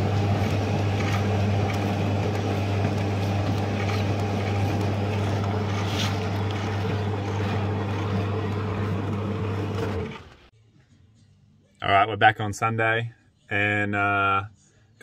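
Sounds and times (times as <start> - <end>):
conveyor belt motor hum: 0.0 - 10.5.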